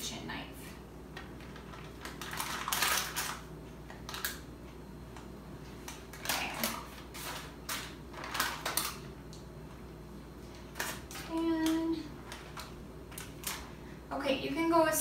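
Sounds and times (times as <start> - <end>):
paper crinkling: 1.2 - 4.4, 5.8 - 9.1.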